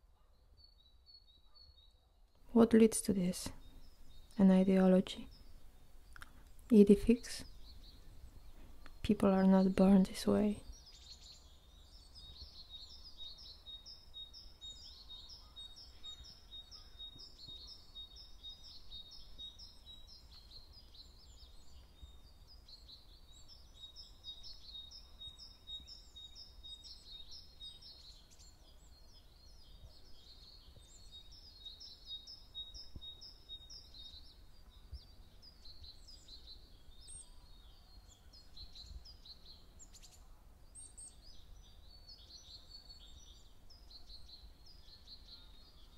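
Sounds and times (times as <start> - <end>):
songbirds chirping and trilling: 0.0 - 45.9.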